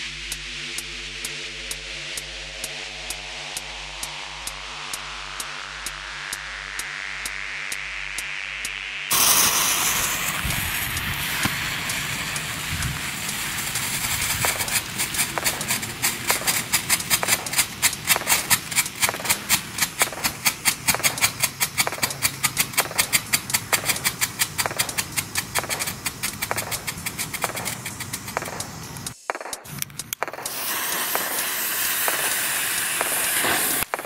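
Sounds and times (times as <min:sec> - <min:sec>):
firework fountain hissing: 0:09.1 - 0:34.0
firework strobe popping: 0:09.1 - 0:34.0.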